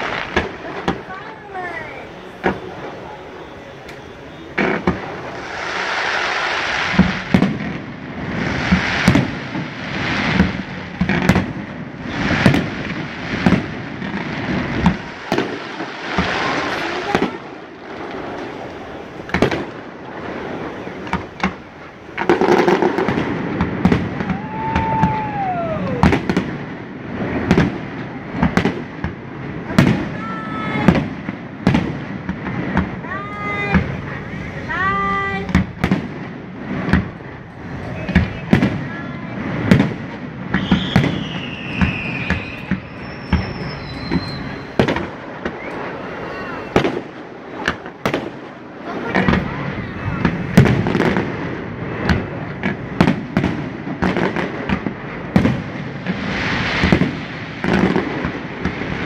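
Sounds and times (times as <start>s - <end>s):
firework crackle and hiss: 0.0s - 59.0s
falling firework whistle: 1.5s - 7.5s, 23.8s - 26.5s, 40.5s - 47.1s
firework shells bursting: 39.6s - 59.0s.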